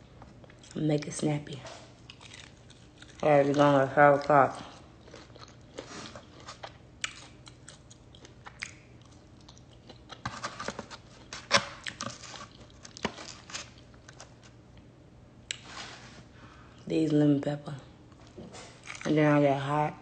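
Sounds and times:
person chewing crunchy food: 0:01.9 - 0:14.9, 0:18.1 - 0:19.1.

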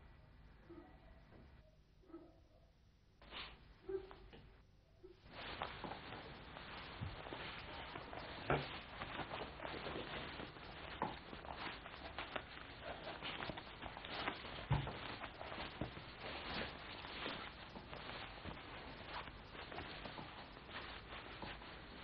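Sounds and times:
book pages handled: 0:05.3 - 0:22.0
padded jacket rustling: 0:05.3 - 0:22.0
soft thumps: 0:05.3 - 0:22.0.

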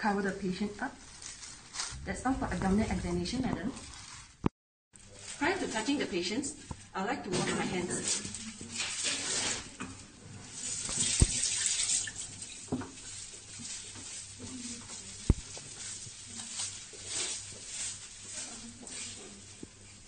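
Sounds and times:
water splashing into a sink: 0:08.7 - 0:14.0.

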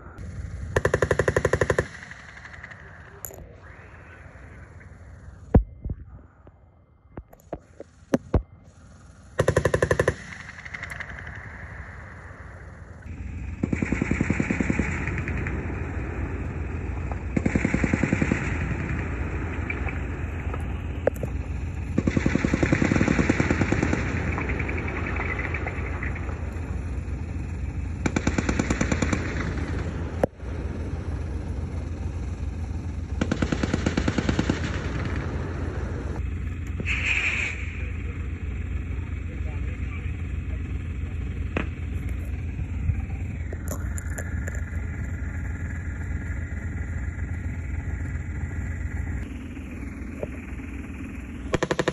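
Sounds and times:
steady low rumble: 0:00.0 - 0:51.9
automatic gunfire bursts: 0:00.7 - 0:02.9, 0:09.4 - 0:11.4, 0:13.6 - 0:15.7, 0:17.3 - 0:19.9, 0:21.9 - 0:26.2, 0:28.0 - 0:30.1, 0:33.2 - 0:35.6, 0:51.5 - 0:51.9.

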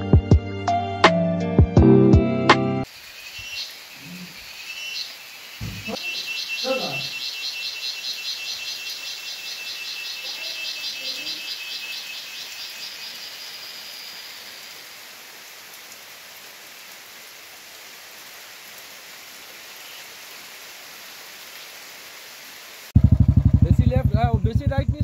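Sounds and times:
rain falling on foliage: 0:02.8 - 0:23.5
insect chorus trilling: 0:02.9 - 0:15.0.

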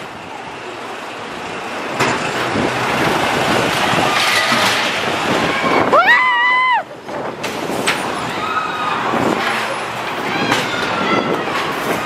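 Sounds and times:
roller coaster riders screaming: 0:00.0 - 0:12.0
roller coaster train rumbling: 0:00.0 - 0:12.0
wind: 0:00.0 - 0:12.0.

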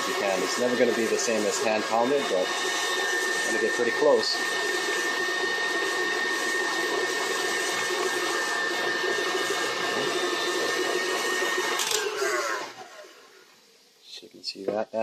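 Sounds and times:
thick paste churning: 0:00.0 - 0:11.8
stand mixer motor whine: 0:00.0 - 0:13.5.

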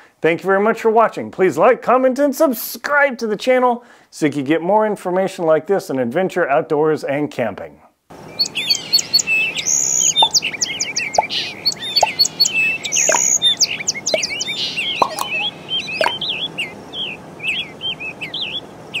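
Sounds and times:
small birds chirping: 0:08.2 - 0:19.0.

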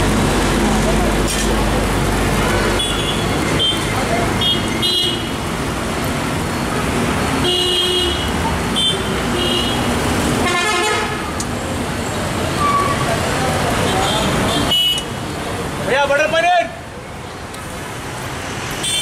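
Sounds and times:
busy road traffic: 0:00.0 - 0:19.0
vehicle horns tooting: 0:02.7 - 0:05.4, 0:07.4 - 0:11.4, 0:13.8 - 0:15.2, 0:18.8 - 0:19.0.

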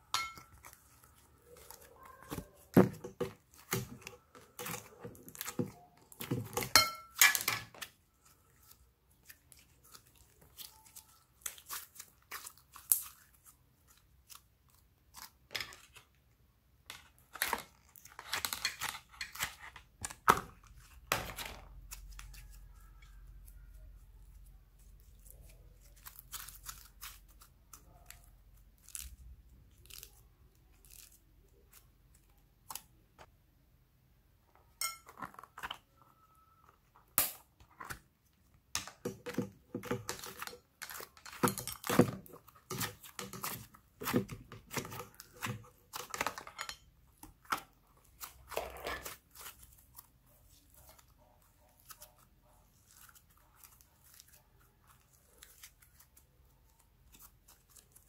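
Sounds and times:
slime clicking and crackling: 0:03.4 - 0:15.5, 0:21.7 - 0:33.0, 0:47.0 - 0:58.0.

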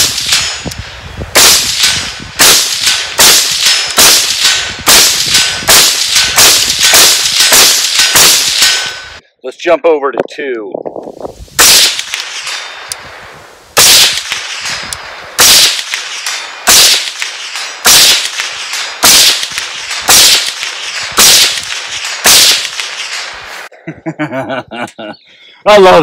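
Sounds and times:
rifle gunshots: 0:00.0 - 0:09.2, 0:11.6 - 0:13.2, 0:13.8 - 0:23.6.

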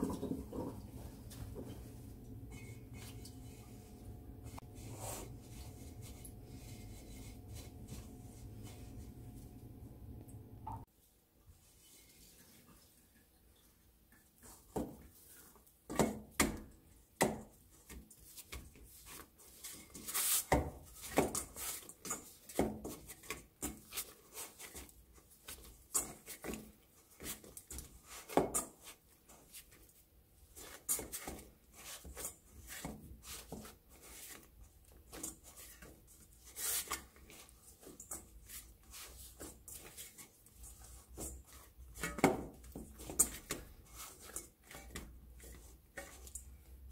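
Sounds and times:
dough slapping in metal bowl: 0:00.0 - 0:03.6, 0:15.9 - 0:29.9, 0:30.6 - 0:46.9
dough rubbing and squishing: 0:00.0 - 0:10.2, 0:14.2 - 0:46.9.

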